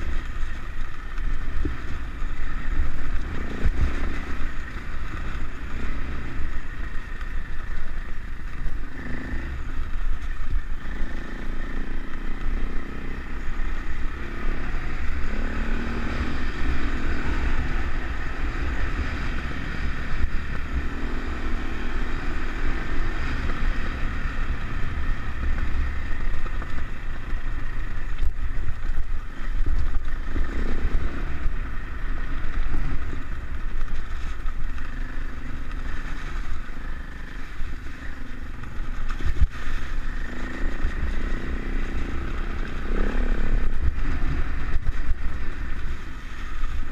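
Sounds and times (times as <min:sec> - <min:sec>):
dirt bike engine revving: 0:01.5 - 0:07.6, 0:08.3 - 0:10.0, 0:10.7 - 0:28.0, 0:29.4 - 0:46.9.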